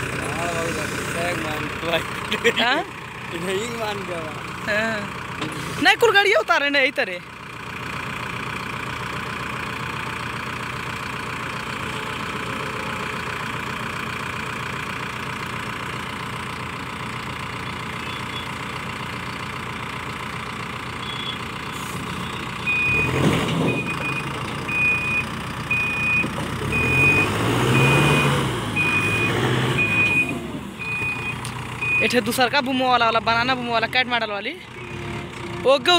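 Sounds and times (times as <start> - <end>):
diesel engine revving: 0.0 - 35.9
reversing alarm beeps: 18.0 - 18.5, 21.0 - 21.4, 22.2 - 32.2.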